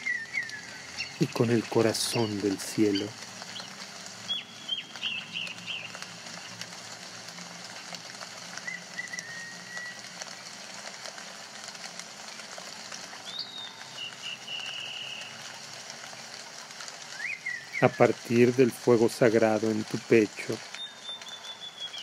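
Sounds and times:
birds calling: 0:00.0 - 0:06.5, 0:13.2 - 0:15.4, 0:17.1 - 0:18.2, 0:20.7 - 0:22.0
steady hiss: 0:00.0 - 0:22.0.

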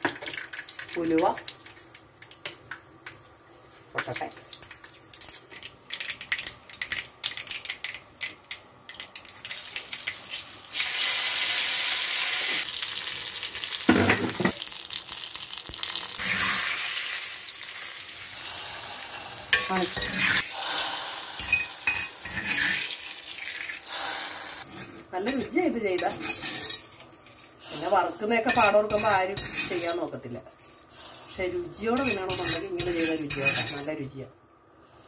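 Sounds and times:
loud sizzle in oil: 0:09.1 - 0:33.8.

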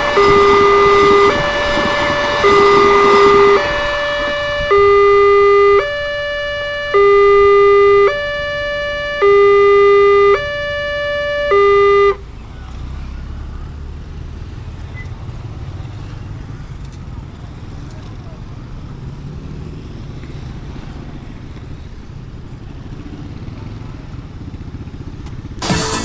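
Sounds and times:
level crossing two-tone alarm: 0:00.0 - 0:12.2
motorcycle engines running: 0:00.0 - 0:26.0.

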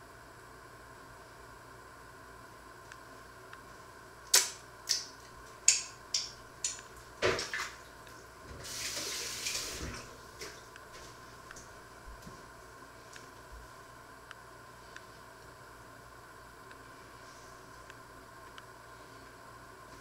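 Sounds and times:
kitchen tap running: 0:08.5 - 0:10.0.

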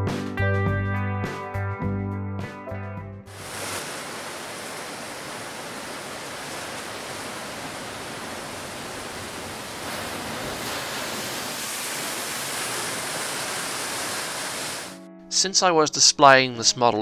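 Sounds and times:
ocean surf crashing on rocks: 0:03.3 - 0:15.0.

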